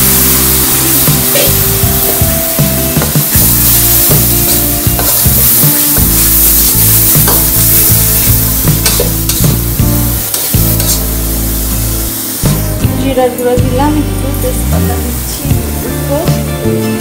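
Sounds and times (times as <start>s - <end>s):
background music: 0.0s - 17.0s
steady sizzle: 0.0s - 17.0s
spatula scraping metal wok: 3.5s - 11.2s.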